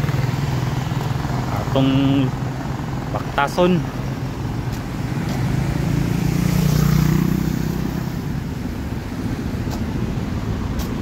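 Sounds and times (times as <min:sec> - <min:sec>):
road traffic passing: 0:00.0 - 0:11.0
vehicle engine hum passing close: 0:00.0 - 0:11.0.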